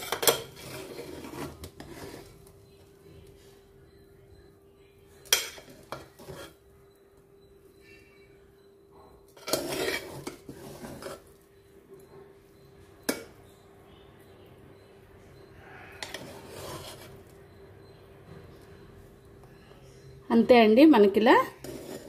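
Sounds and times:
metal spoon scraping pot: 0:00.0 - 0:02.5, 0:05.2 - 0:06.7, 0:09.3 - 0:11.4, 0:16.0 - 0:17.4, 0:21.4 - 0:22.0.

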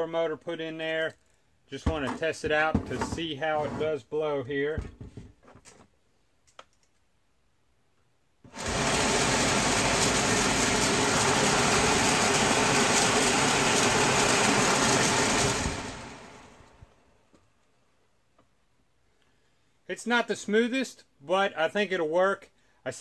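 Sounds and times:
blower motor rushing air: 0:08.5 - 0:17.0.

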